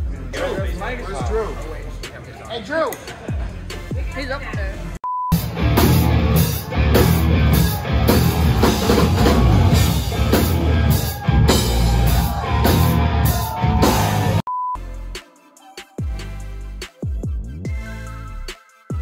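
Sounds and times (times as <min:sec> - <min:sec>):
distorted electric guitar: 0:05.4 - 0:14.4
drum kit hitting hard: 0:05.4 - 0:14.4.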